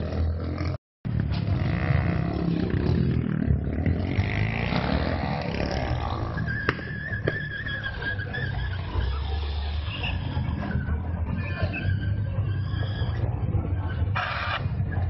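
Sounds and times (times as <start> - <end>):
high steady squeal: 6.0 - 15.0.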